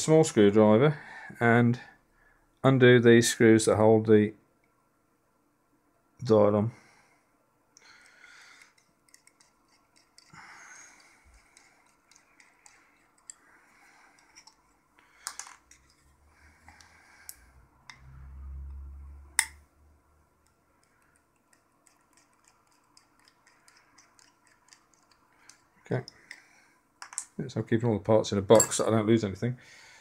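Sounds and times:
screwdriver scraping screw heads: 8.6s - 13.4s, 14.2s - 16.1s.

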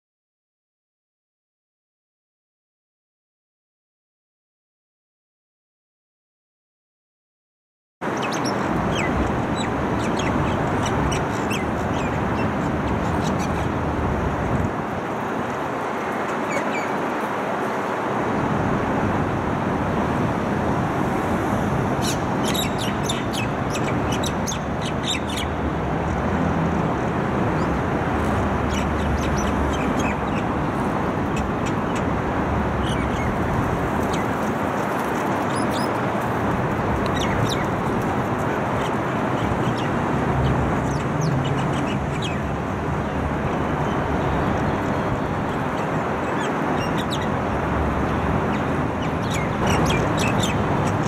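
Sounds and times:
city traffic din: 8.0s - 51.0s.

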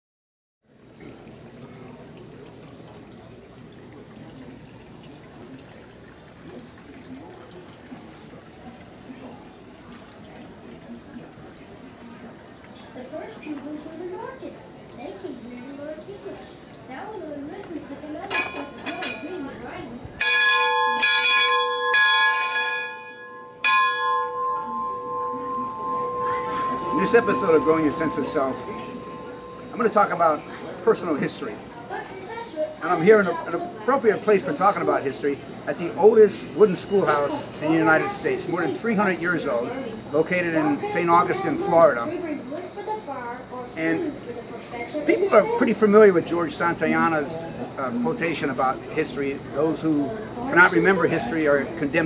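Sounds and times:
faint distant voices: 0.7s - 20.2s, 24.4s - 52.0s
large bell ringing: 20.2s - 31.9s.

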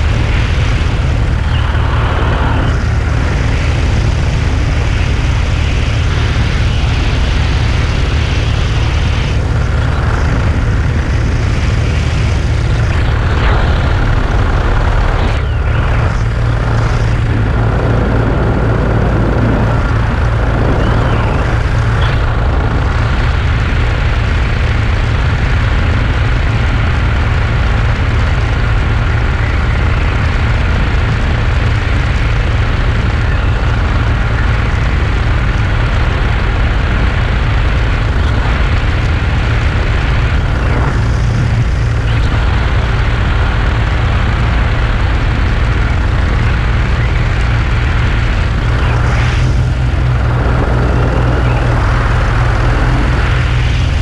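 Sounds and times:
small aircraft engine and propeller: 0.0s - 54.0s
thin steady whine: 0.0s - 54.0s
wind rushing over microphone: 0.0s - 54.0s.

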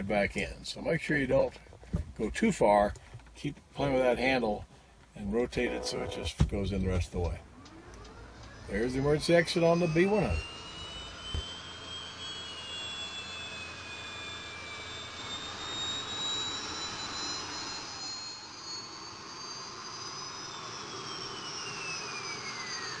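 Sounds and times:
aircraft turbine whine: 4.8s - 23.0s
high tones rising and falling: 5.3s - 23.0s.

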